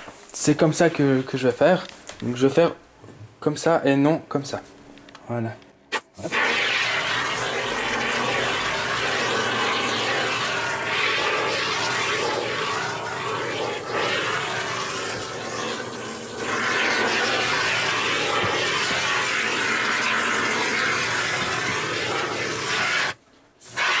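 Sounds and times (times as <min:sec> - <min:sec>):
aerosol foam can hissing: 0:06.2 - 0:24.0.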